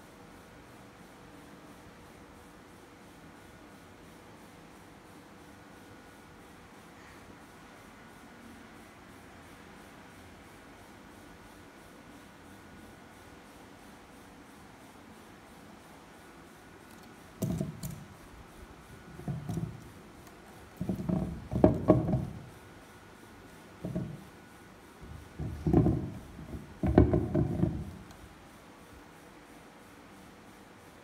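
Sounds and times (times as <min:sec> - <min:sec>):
wooden figurines knocking: 0:17.4 - 0:18.0, 0:19.2 - 0:19.8, 0:20.8 - 0:22.5, 0:23.8 - 0:24.2, 0:25.0 - 0:28.1.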